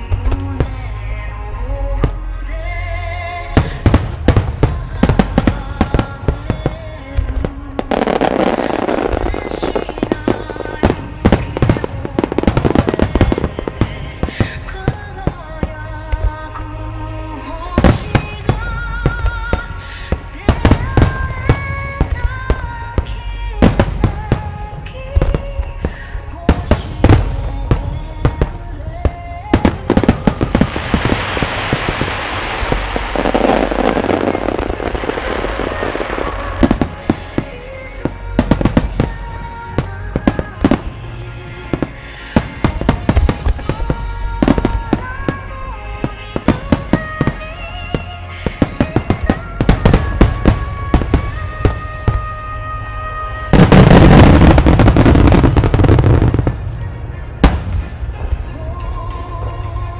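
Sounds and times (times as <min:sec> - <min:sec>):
music with a melody: 0:00.0 - 0:59.9.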